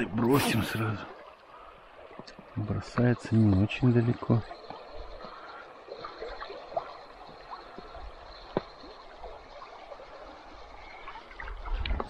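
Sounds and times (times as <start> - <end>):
river water trickling and gurgling: 0.0 - 12.0
small water plops: 2.1 - 9.4.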